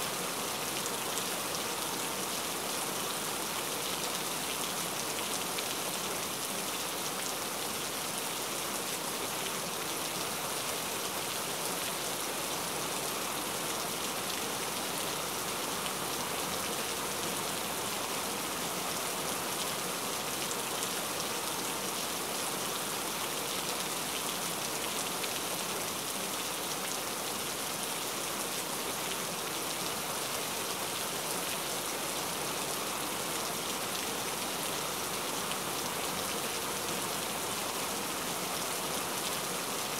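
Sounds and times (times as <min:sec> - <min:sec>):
steady rain: 0:00.0 - 0:39.9.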